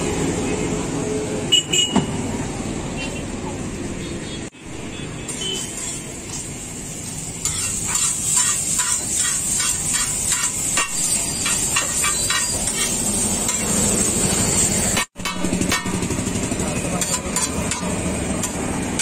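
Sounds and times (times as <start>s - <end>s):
metal spatulas clanking on griddle: 7.4s - 13.8s, 14.9s - 16.0s, 16.9s - 19.0s.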